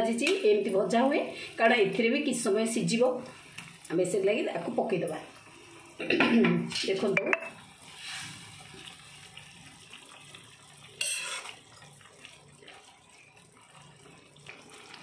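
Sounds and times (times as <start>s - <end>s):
ladle stirring and scraping pan: 11.0s - 11.8s.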